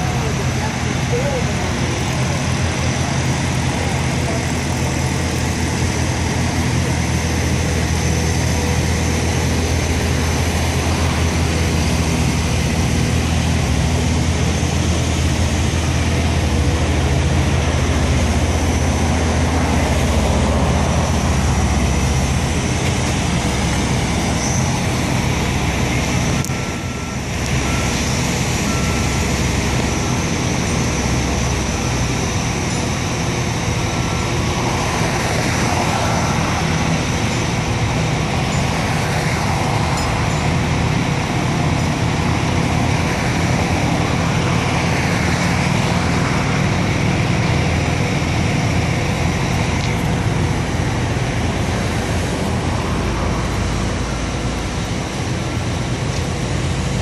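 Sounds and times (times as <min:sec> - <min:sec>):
diesel engines droning: 0:00.0 - 0:57.0
warning alarm beeps: 0:26.4 - 0:29.9.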